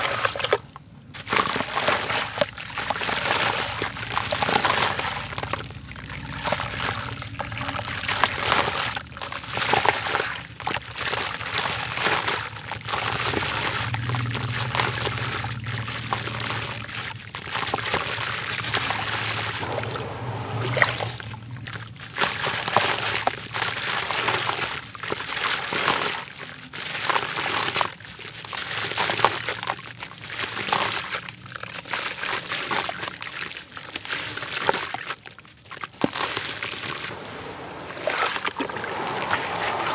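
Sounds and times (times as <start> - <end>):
water sloshing and trickling: 0.0 - 39.9.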